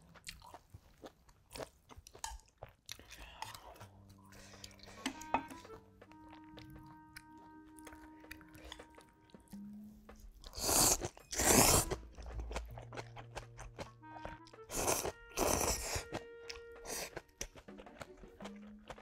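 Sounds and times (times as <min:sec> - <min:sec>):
crunchy chewing: 0:00.0 - 0:05.0, 0:10.4 - 0:19.0
slurping noodles: 0:10.5 - 0:13.8, 0:14.6 - 0:17.7.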